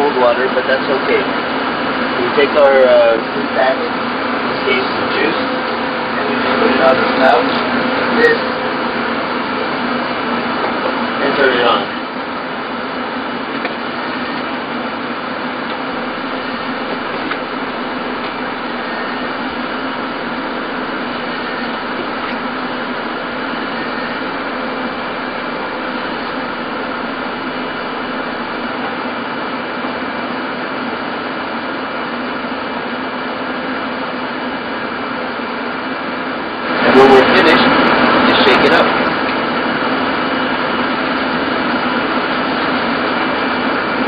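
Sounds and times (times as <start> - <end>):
fans humming and hissing: 15.4 - 29.5
faint steady tones: 15.9 - 28.7.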